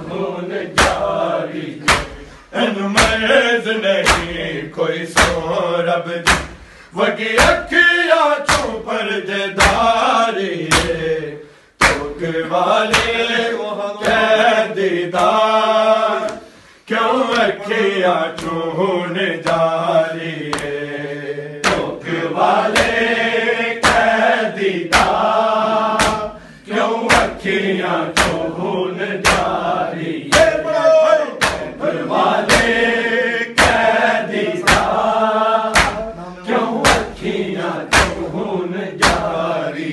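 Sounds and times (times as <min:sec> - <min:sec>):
men chanting in unison: 0:00.0 - 0:39.9
hand slaps on bare chests: 0:00.7 - 0:02.4, 0:03.0 - 0:03.4, 0:04.0 - 0:04.5, 0:05.1 - 0:05.6, 0:06.2 - 0:06.8, 0:07.4 - 0:08.9, 0:09.6 - 0:11.2, 0:11.8 - 0:16.5, 0:17.3 - 0:17.6, 0:18.2 - 0:18.8, 0:19.4 - 0:19.8, 0:20.4 - 0:20.8, 0:21.6 - 0:23.2, 0:23.8 - 0:26.5, 0:27.1 - 0:30.7, 0:31.4 - 0:33.0, 0:33.6 - 0:39.7.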